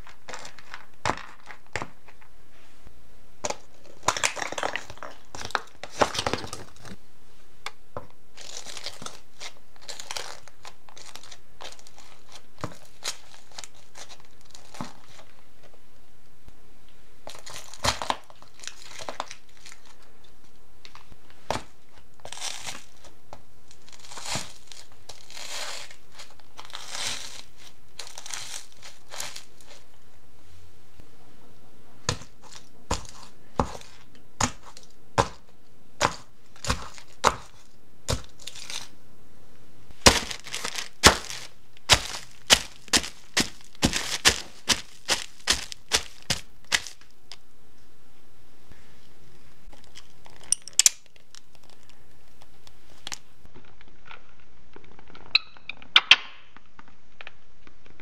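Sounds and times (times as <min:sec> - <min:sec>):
foil crinkling and crunching: 0:00.0 - 0:01.9, 0:03.5 - 0:07.0, 0:08.3 - 0:15.4, 0:17.3 - 0:20.0, 0:21.5 - 0:29.9, 0:32.1 - 0:35.4, 0:36.0 - 0:38.9, 0:40.0 - 0:47.1
high heel cracks and clicks: 0:32.1 - 0:35.4, 0:40.0 - 0:47.0.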